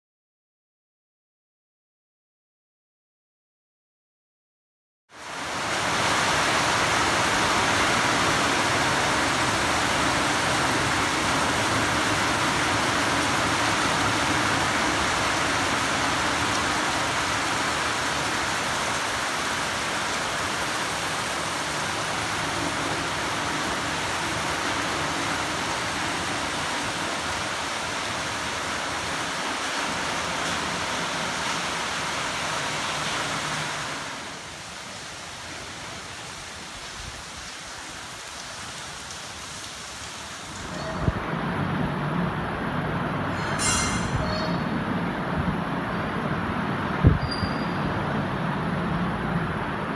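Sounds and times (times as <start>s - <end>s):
heavy rain on foliage: 5.1s - 43.2s.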